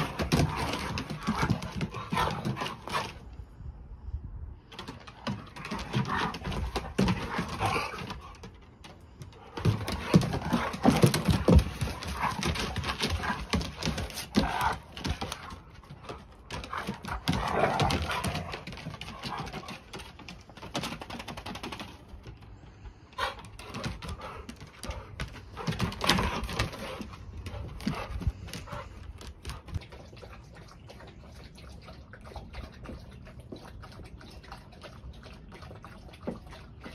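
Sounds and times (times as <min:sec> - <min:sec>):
paws thumping on boards: 0:00.0 - 0:03.2, 0:04.7 - 0:22.4, 0:23.2 - 0:30.0
dogs play growling: 0:00.0 - 0:03.3, 0:04.8 - 0:22.1, 0:23.2 - 0:36.9
claws scrabbling on wood: 0:04.7 - 0:22.5.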